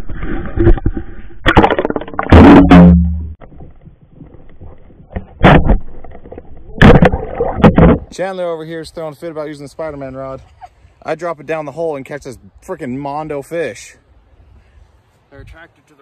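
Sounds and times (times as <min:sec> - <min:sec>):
loud irregular bumps: 0:00.0 - 0:08.1
muffled underwater thumps: 0:00.2 - 0:08.1.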